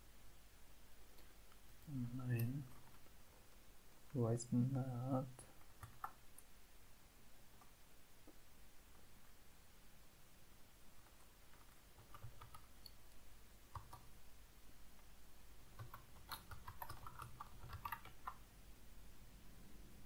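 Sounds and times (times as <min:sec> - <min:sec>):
faint keyboard typing: 0:01.1 - 0:03.2, 0:05.2 - 0:06.5, 0:10.9 - 0:14.2, 0:15.6 - 0:18.5.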